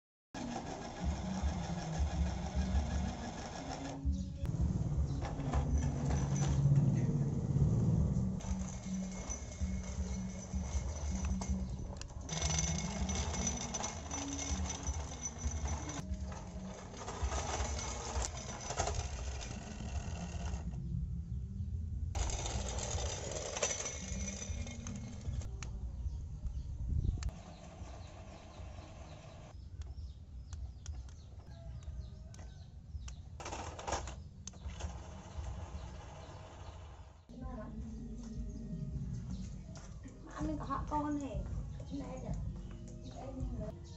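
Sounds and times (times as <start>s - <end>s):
toy electric motors whirring: 0.4s - 4.1s, 8.4s - 20.8s, 22.2s - 25.5s, 33.4s - 37.2s.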